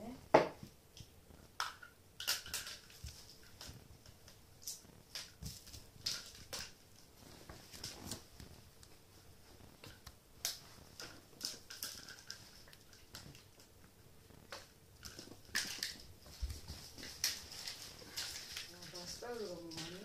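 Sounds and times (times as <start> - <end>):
kittens scrambling on wooden floor: 14.5 - 20.0.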